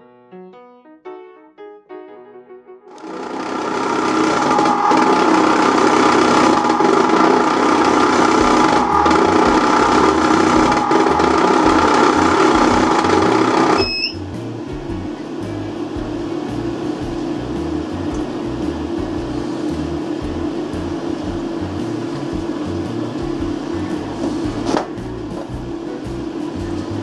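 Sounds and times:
ice cream maker motor drone: 2.9s - 14.2s
compressor cooling hum: 3.0s - 27.0s
short electronic beep: 4.0s - 14.3s.

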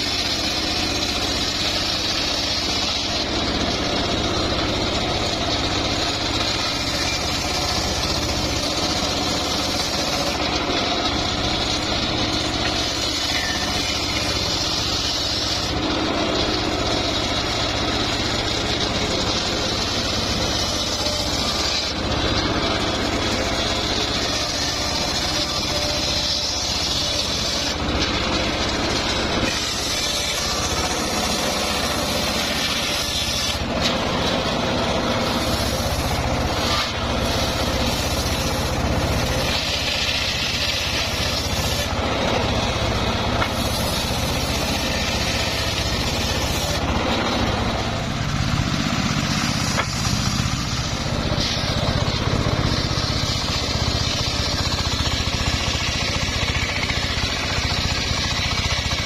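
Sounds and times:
table saw cutting wood: 0.0s - 59.0s.

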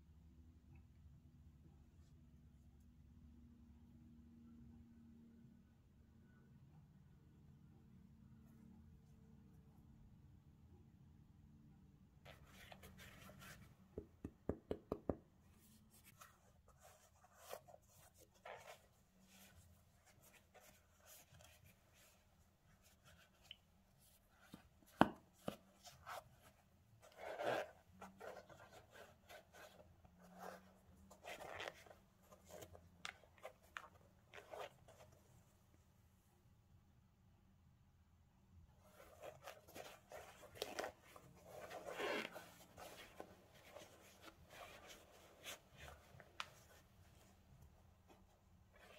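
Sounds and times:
glove fabric rubbing on shoe: 12.3s - 13.9s, 15.5s - 35.2s, 38.8s - 48.9s.

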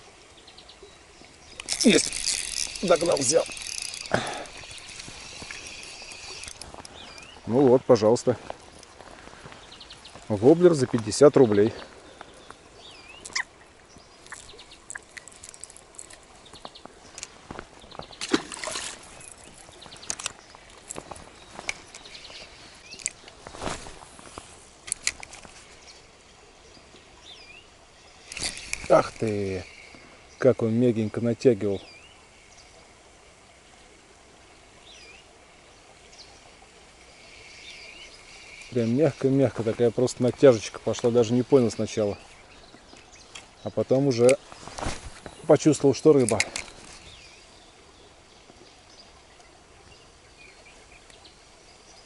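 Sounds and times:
flowing water hiss: 0.0s - 52.0s
bird chirp: 0.4s - 18.4s, 34.8s - 52.0s
faint clicks and rustles: 1.2s - 12.6s, 13.2s - 26.0s, 28.2s - 30.1s, 36.9s - 47.2s.

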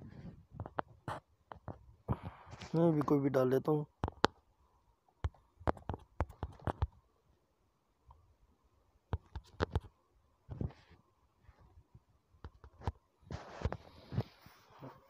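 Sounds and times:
taps on smartphone keyboard: 5.2s - 7.0s, 9.1s - 9.9s.

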